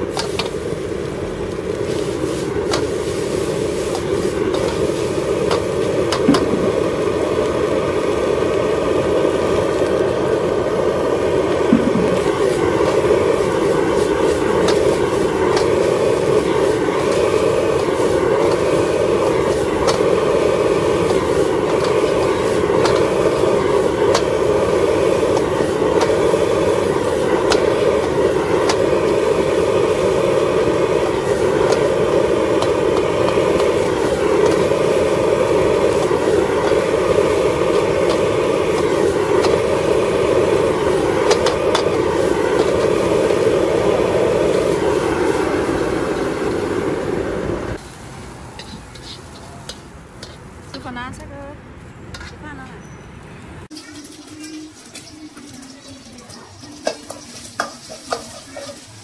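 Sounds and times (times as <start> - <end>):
gas burner roaring: 0.0 - 52.6, 53.6 - 59.0
metal spatula clicking on wok: 53.8 - 58.7.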